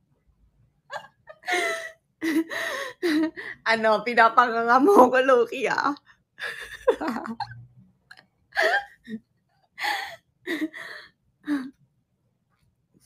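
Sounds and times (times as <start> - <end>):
woman laughing: 0.9 - 3.6, 6.4 - 7.6, 8.6 - 9.2.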